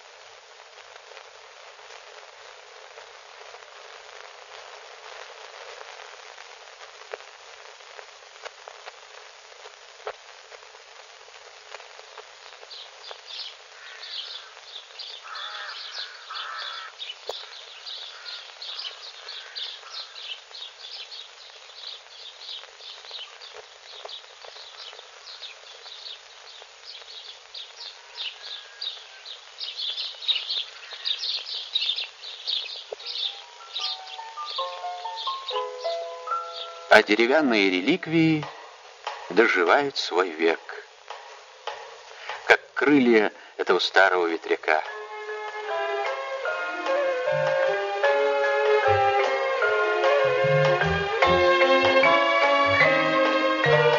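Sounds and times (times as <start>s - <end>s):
steady hiss: 0.0s - 53.9s
birds chirping: 12.5s - 38.6s
harsh caws: 13.7s - 20.3s, 28.0s - 29.3s, 30.8s - 31.3s.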